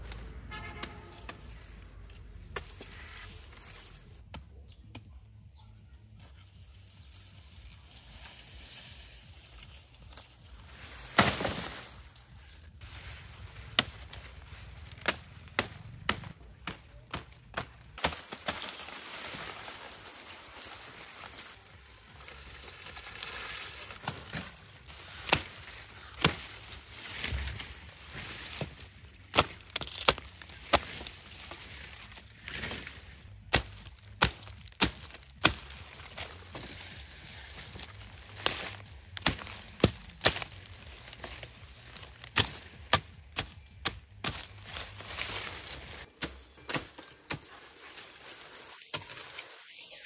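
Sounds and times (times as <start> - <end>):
blade chopping sugarcane: 25.2 - 27.6, 28.4 - 36.7, 37.7 - 45.0, 45.6 - 47.5.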